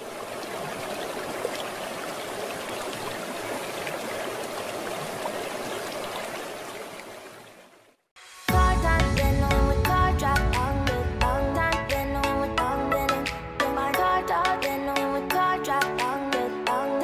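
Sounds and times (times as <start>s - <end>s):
stream water flowing: 0.0s - 8.4s.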